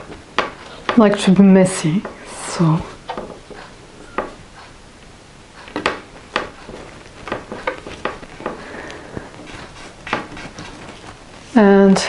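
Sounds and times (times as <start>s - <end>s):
paper rustling: 5.7s - 11.6s.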